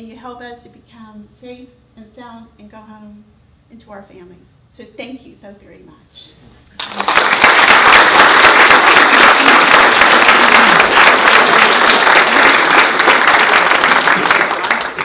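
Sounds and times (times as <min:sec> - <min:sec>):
crowd applause: 0:06.8 - 0:15.0.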